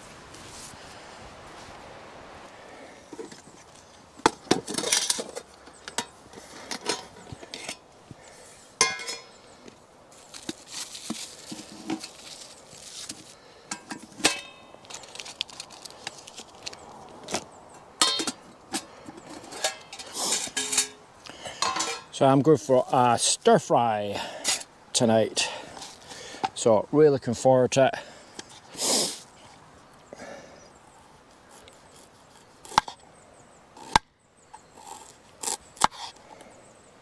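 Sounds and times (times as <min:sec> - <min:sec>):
metal pots clinking and knocking: 0:04.2 - 0:06.1, 0:08.8 - 0:09.3, 0:13.7 - 0:14.6, 0:18.0 - 0:21.0, 0:21.6 - 0:22.2
plastic wrapping rustling: 0:10.1 - 0:13.4, 0:14.8 - 0:17.4.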